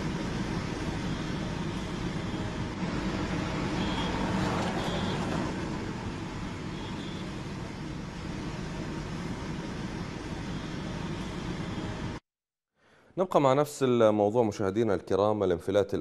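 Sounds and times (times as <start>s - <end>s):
street traffic rumble: 0.0s - 12.2s.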